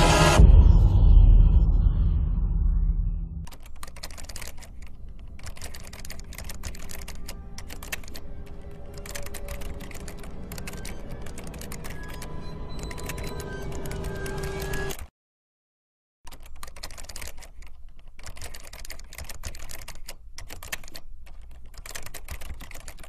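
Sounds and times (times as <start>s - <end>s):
rapid irregular clicking: 3.5s - 12.2s, 16.3s - 23.0s.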